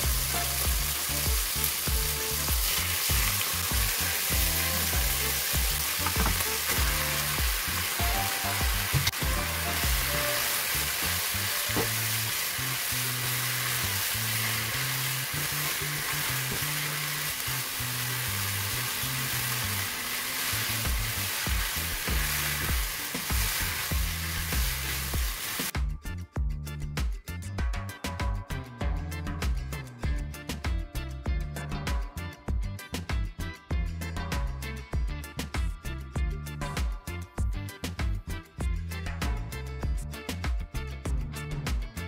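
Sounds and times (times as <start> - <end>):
food sizzling in hot oil: 0.0 - 25.8.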